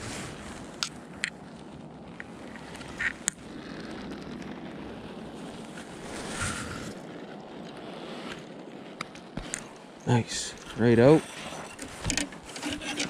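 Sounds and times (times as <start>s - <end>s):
brushing rustle: 0.0s - 0.9s, 5.4s - 8.5s, 9.4s - 13.0s
steady hiss: 0.0s - 13.0s.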